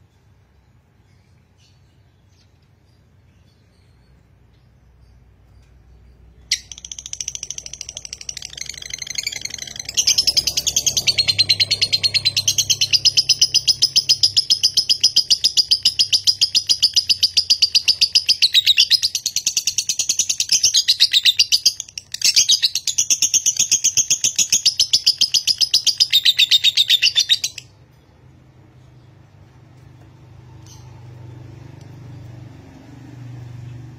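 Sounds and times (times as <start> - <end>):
lovebird chattering trill: 6.4 - 27.8.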